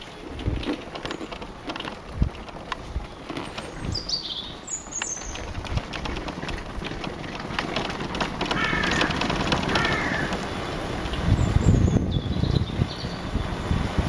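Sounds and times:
motorbike on cobblestones: 0.0s - 14.0s
bird calling: 3.1s - 7.5s, 8.2s - 10.6s.

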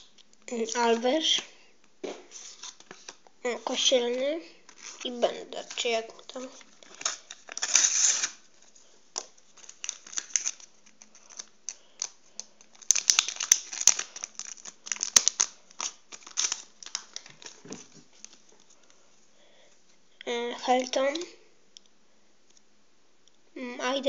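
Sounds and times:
paper crinkling and rustling: 4.7s - 19.0s.

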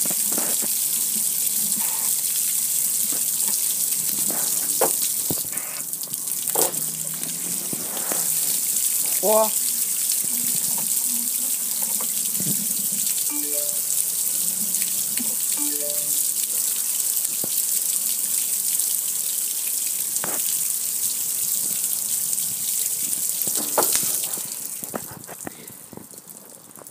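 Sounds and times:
water spraying on metal grill: 3.8s - 5.9s, 6.5s - 11.3s.

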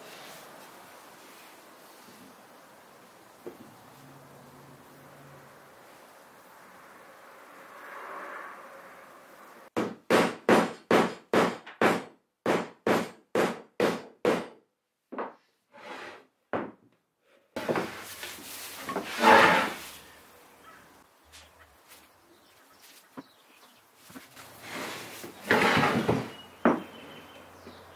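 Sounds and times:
glue scraping on plywood: 18.8s - 19.8s.

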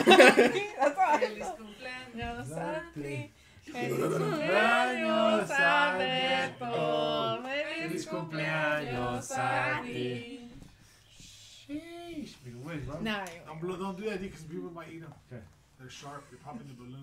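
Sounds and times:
group singing without accompaniment: 2.2s - 10.8s.

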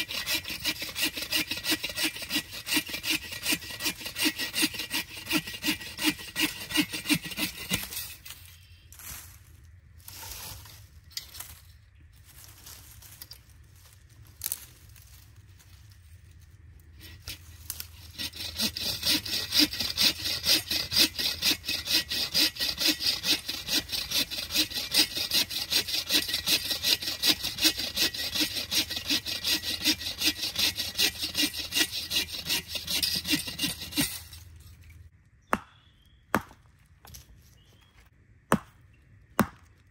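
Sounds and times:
hand saw cutting wood: 0.0s - 8.4s, 17.0s - 34.8s.

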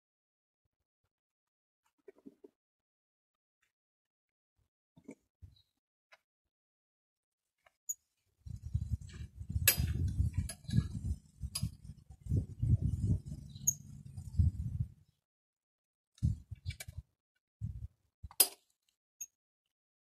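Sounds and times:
uneven low rumble: 8.5s - 15.0s
clicks and clinks on bike handlebars: 18.3s - 19.4s.

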